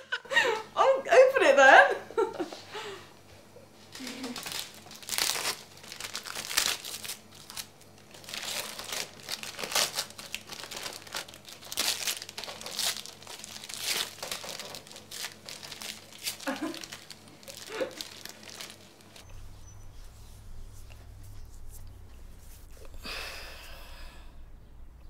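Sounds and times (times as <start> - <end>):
wrapping paper crinkling and tearing: 3.9 - 23.0.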